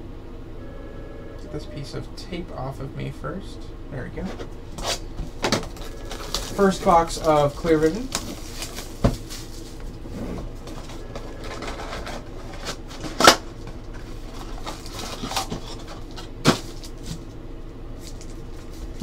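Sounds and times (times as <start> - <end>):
cardboard rustling and scraping: 4.3 - 17.3.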